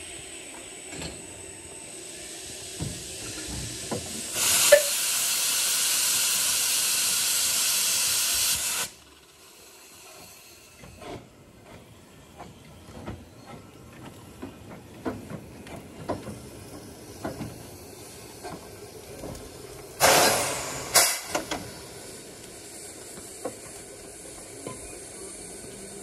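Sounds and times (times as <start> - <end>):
loud bursts of steam hiss: 0.0 - 10.8, 19.8 - 26.0
steam locomotive hissing: 0.0 - 26.0.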